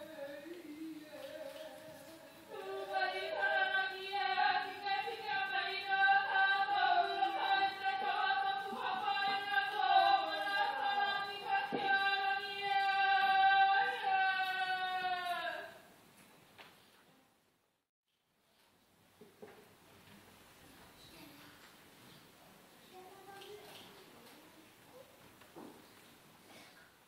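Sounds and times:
congregation singing a hymn: 0:00.0 - 0:15.8.

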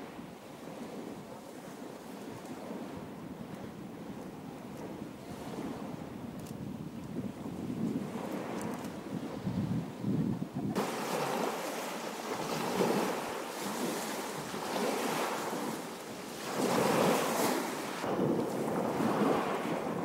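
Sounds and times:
wind buffeting microphone: 0:00.0 - 0:20.0
waves washing on pebble beach: 0:10.8 - 0:20.0.

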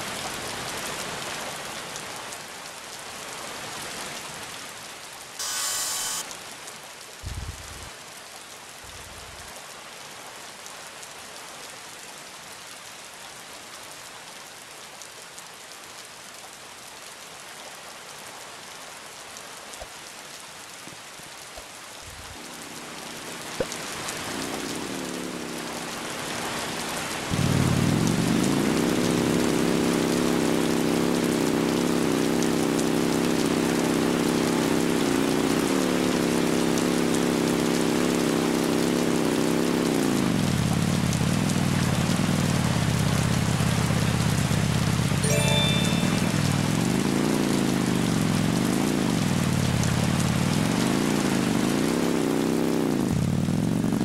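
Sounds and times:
steady rain falling: 0:00.0 - 0:54.0
motor drone: 0:05.4 - 0:06.3, 0:22.4 - 0:26.6.

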